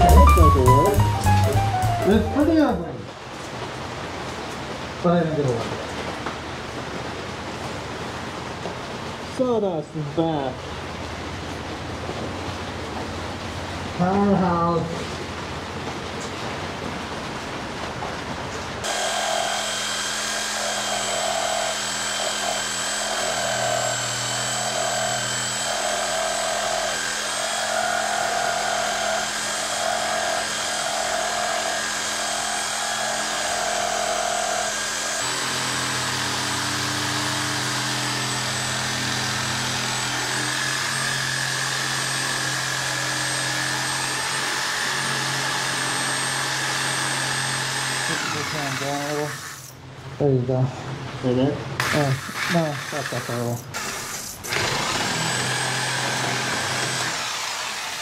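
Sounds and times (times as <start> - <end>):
power saw cutting plywood: 18.8 - 49.7, 51.8 - 58.0
reciprocating saw cutting plywood: 18.8 - 49.7, 51.8 - 58.0.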